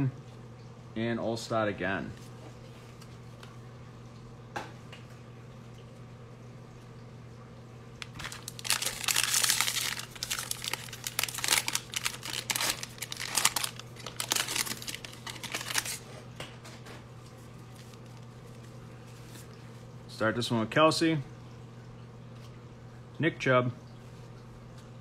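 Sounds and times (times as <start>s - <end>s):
foil wrapper tearing and crinkling: 8.0s - 16.1s.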